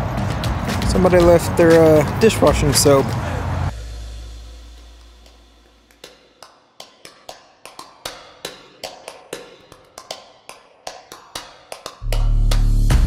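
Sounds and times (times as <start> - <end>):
sharp rhythmic clicks: 5.0 - 12.7.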